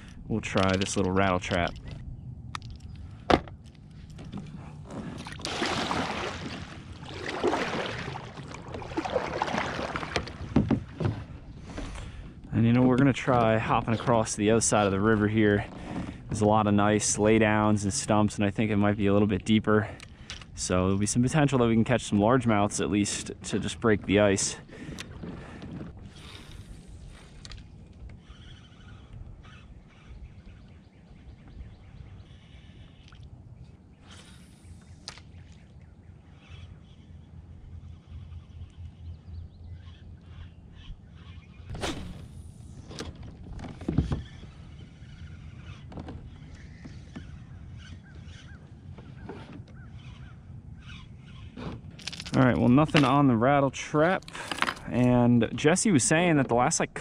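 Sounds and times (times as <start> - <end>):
low steady rumble: 0.0 - 28.3, 29.0 - 49.0
paddle strokes splashing water: 4.4 - 12.2
birds chirping: 22.5 - 42.2, 43.8 - 51.6.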